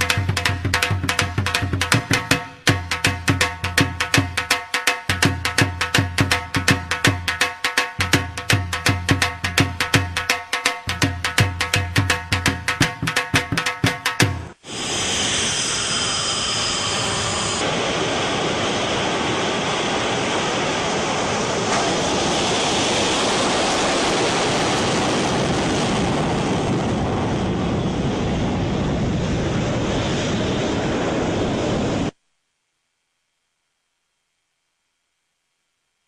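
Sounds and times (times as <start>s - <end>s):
high whine: 10.8s - 25.9s
jet engines roaring: 14.5s - 32.1s.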